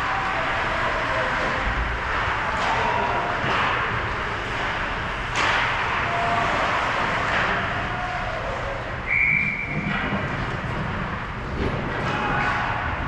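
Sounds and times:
hockey sticks and puck clattering: 0.5 - 13.0
sharp crack: 2.5 - 7.6.

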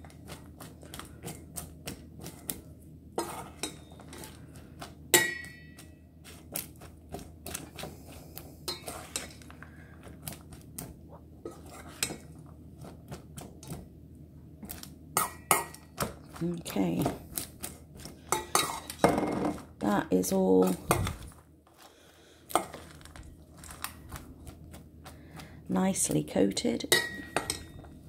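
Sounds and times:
metal spoon scraping metal bowl: 3.2 - 4.4, 8.7 - 9.5, 11.4 - 12.3, 18.3 - 19.1.

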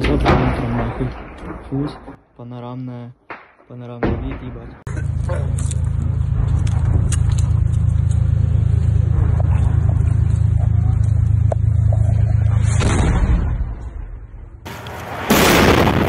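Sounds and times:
vehicle engine droning: 4.9 - 15.2.

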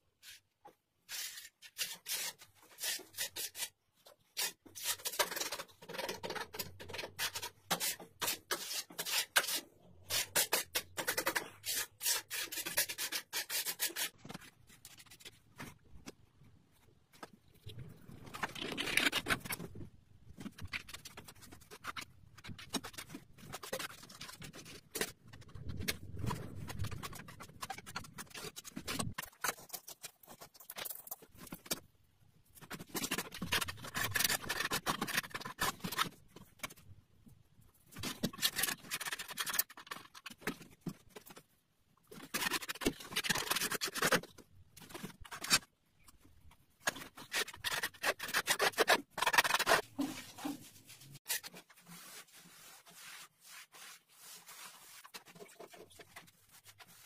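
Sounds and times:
hand tool scraping mortar: 7.0 - 14.2.

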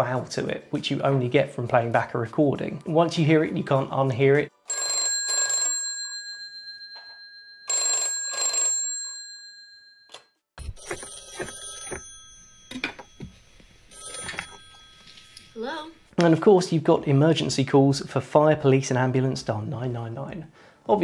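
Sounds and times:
telephone bell ringing: 4.7 - 15.6
recorded telephone ring effect: 4.7 - 16.0.

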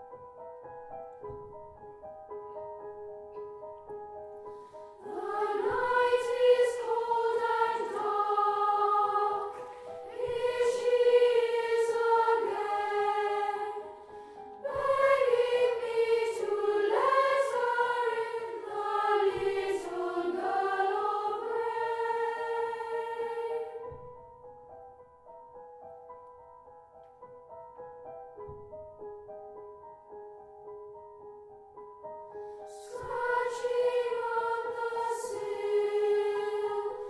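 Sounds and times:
grand piano: 0.0 - 37.0
boys' choir singing: 5.0 - 23.8, 32.8 - 37.0.

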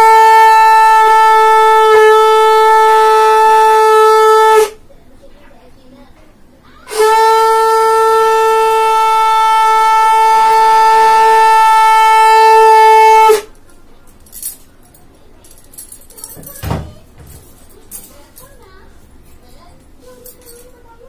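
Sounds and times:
conch shell blown: 0.0 - 4.8, 6.9 - 13.6.

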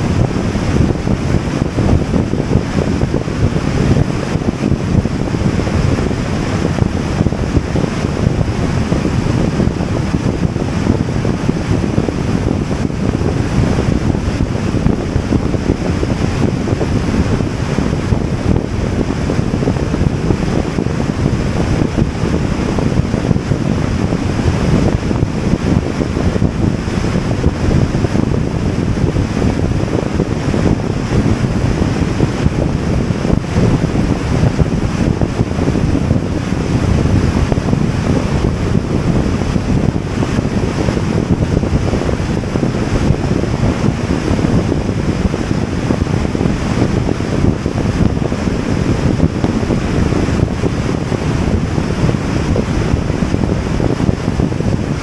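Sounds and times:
wind rumble on microphone: 0.0 - 55.0.

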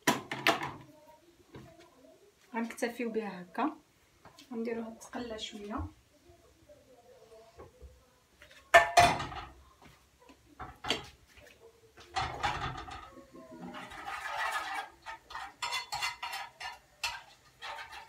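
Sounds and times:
dishes clinking and scraping: 8.4 - 9.6, 10.6 - 11.2, 12.0 - 18.0.

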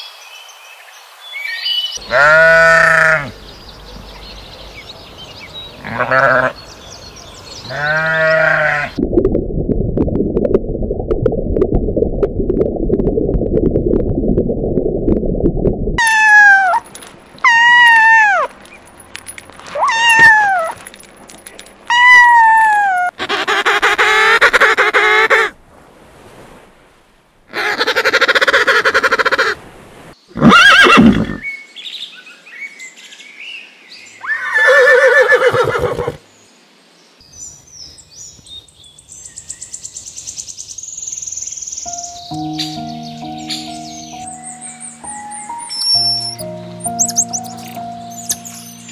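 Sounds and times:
kitten meowing: 16.0 - 16.8, 19.8 - 20.8
horse whinnying: 30.3 - 31.5, 34.2 - 36.2.

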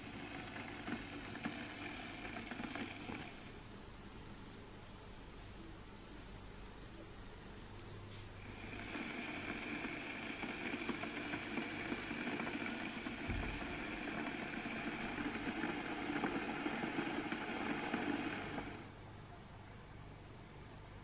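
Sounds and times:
electric kettle heating water: 0.0 - 3.8, 8.4 - 19.1
low thud: 13.3 - 13.6.

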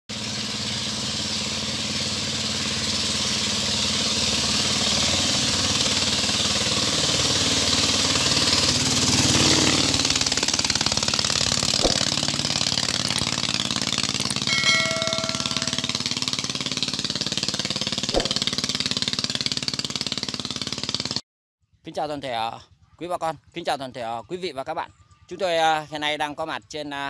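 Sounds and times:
boat engine passing: 0.1 - 21.2
sharp click: 11.8 - 12.1, 18.2 - 18.5
short chime: 14.5 - 16.1.

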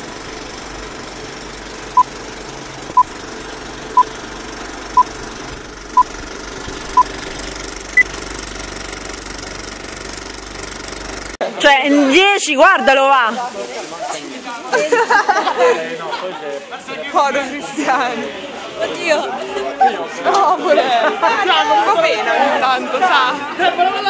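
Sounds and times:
film projector rattle: 0.0 - 11.4.

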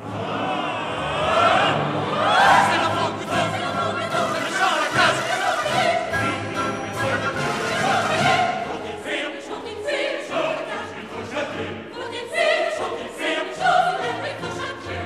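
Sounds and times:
orchestra playing: 0.0 - 9.8
choir singing exclamations: 0.0 - 15.0.

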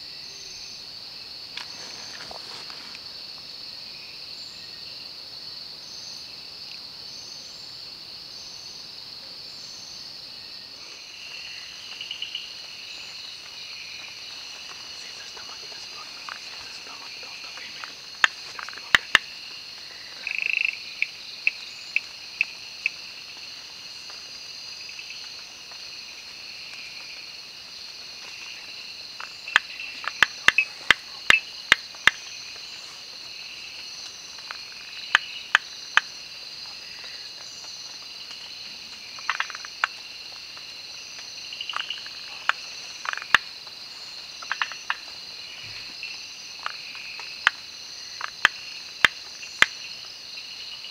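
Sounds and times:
crickets and insects chorus: 0.0 - 50.9
frogs clicking: 11.0 - 50.9.

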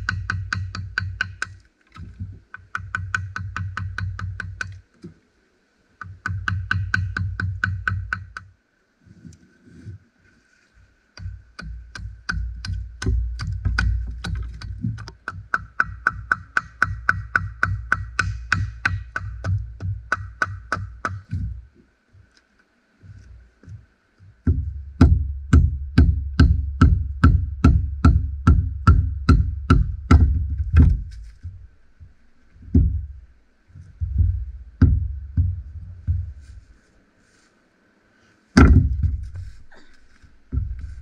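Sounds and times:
wooden club knocking on hatchet: 0.0 - 1.6, 6.0 - 8.5, 11.2 - 21.6, 24.4 - 33.2, 34.0 - 36.6, 38.6 - 39.6, 40.5 - 41.0.

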